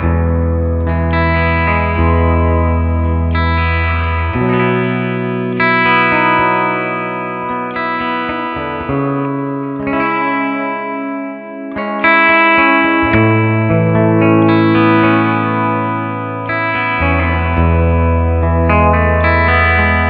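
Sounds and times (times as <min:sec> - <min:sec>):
clean electric guitar chords: 0:00.0 - 0:20.0.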